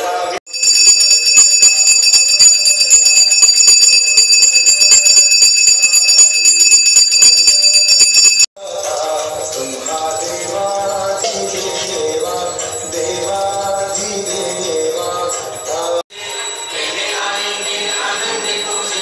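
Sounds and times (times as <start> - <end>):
metal bell rung rapidly: 0.5 - 8.5, 9.2 - 19.0.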